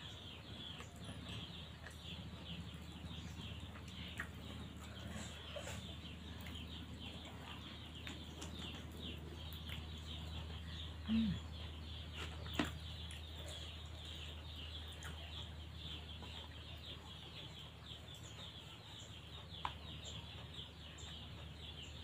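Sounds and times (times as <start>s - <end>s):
low steady hum: 0.0s - 22.0s
small birds chirping: 0.0s - 22.0s.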